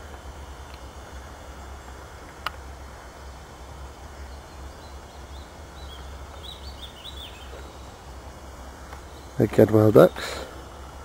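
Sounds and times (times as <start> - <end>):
high bird chirps: 4.6 - 7.9.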